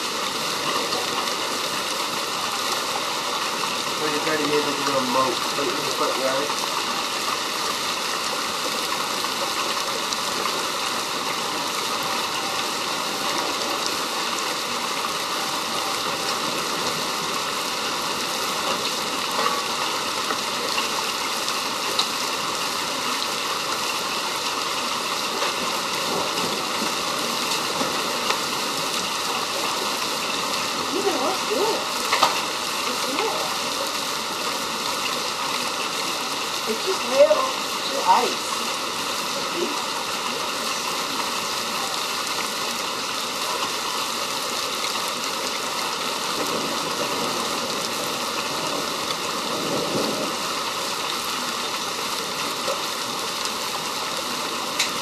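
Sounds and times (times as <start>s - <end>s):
hail and rain pouring: 0.0s - 55.0s.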